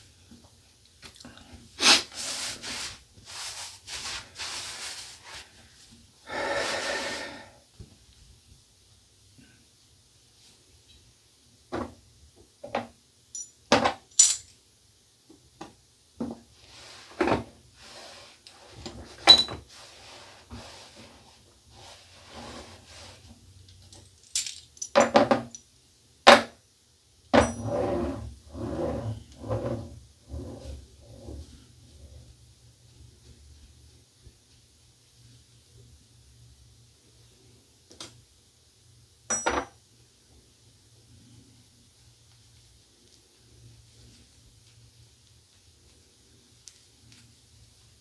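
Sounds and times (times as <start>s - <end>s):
towel being handled: 1.8s - 5.6s.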